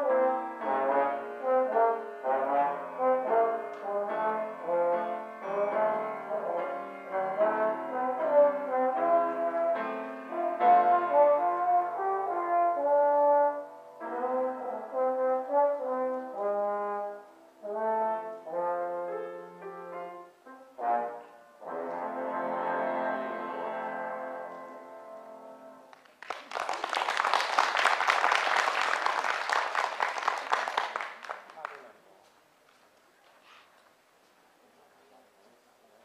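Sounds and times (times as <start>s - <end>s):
trombone playing blues: 0.0s - 25.4s
piano accompaniment: 0.0s - 25.9s
audience applause: 25.9s - 32.0s.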